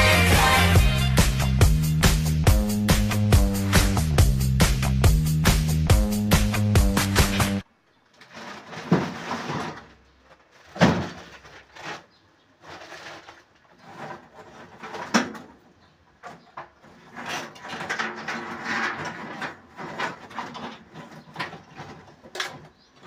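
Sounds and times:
small objects handled by hand: 0:07.9 - 0:23.0.

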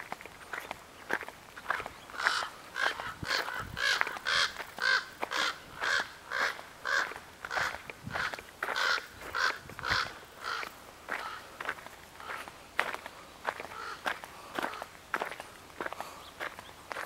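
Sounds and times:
footsteps crunching on wood chips: 0:00.0 - 0:17.0
crow cawing: 0:02.1 - 0:12.5, 0:13.6 - 0:14.9.

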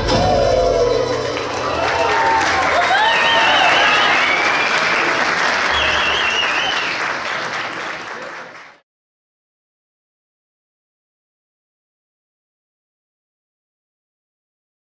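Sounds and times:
audience applauding: 0:00.8 - 0:08.8.

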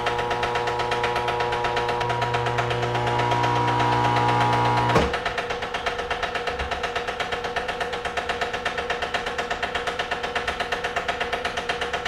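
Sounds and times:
vacuum pump pulsing hum: 0:00.0 - 0:05.4.

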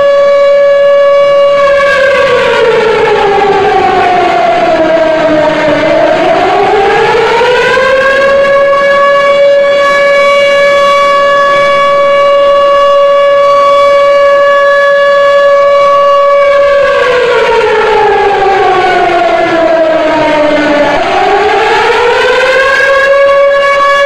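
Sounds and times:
civil defence siren: 0:00.0 - 0:24.0.

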